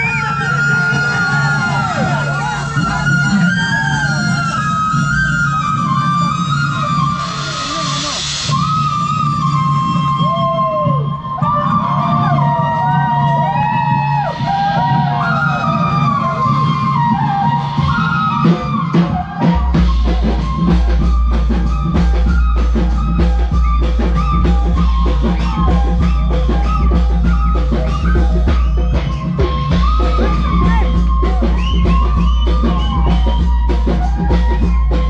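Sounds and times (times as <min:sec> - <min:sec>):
drum beats: 0:00.0 - 0:35.0
heavy bass: 0:17.1 - 0:35.0.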